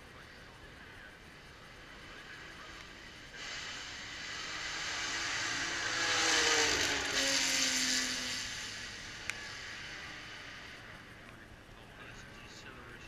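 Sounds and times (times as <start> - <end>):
race car passing at speed: 1.4 - 13.0.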